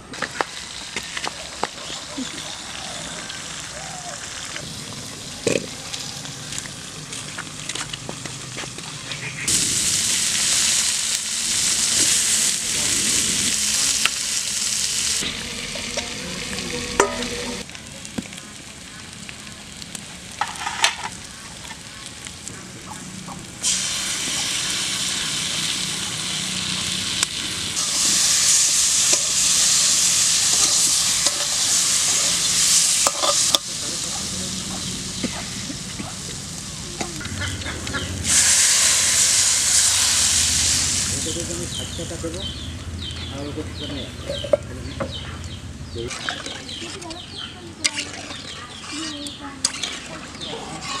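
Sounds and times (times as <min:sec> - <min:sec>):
potatoes sizzling in hot oil: 0:00.2 - 0:42.6, 0:46.0 - 0:51.0
metal spatula scraping wok: 0:14.6 - 0:17.6, 0:27.8 - 0:33.7, 0:46.1 - 0:51.0.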